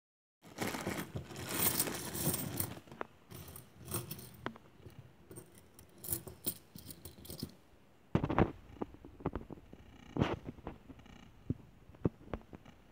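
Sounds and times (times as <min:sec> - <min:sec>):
plastic bag rustling: 0:00.4 - 0:03.0
coins sliding and clinking: 0:00.8 - 0:04.5, 0:05.3 - 0:07.6
coins clinking together: 0:01.4 - 0:04.4, 0:05.3 - 0:07.6.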